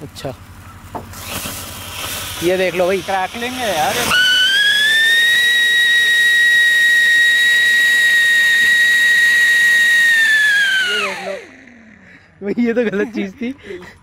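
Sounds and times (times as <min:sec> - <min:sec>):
firework spark spray hiss: 0:01.1 - 0:11.4
firework loud whistle: 0:04.0 - 0:11.5.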